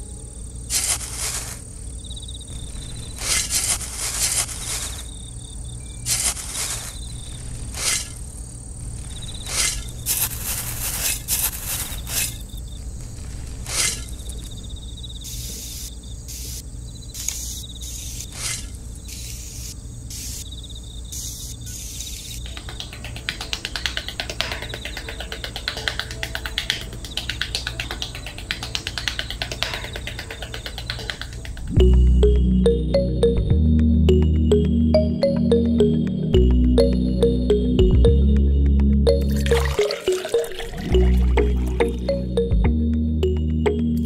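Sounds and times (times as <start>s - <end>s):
metal trowel scraping sand: 9.5s - 12.4s.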